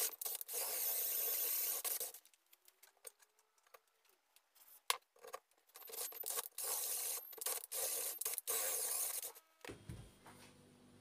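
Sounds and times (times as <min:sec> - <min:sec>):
cordless drill boring: 0:06.4 - 0:09.3.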